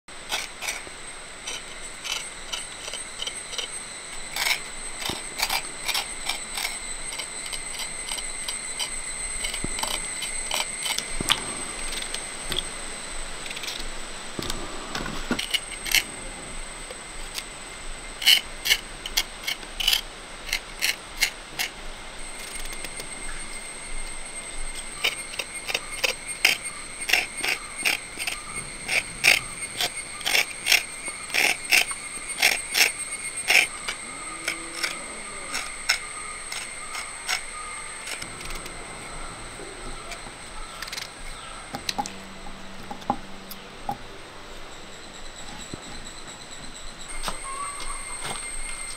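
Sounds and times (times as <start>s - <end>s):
high-pitched drone: 22.8s - 43.4s.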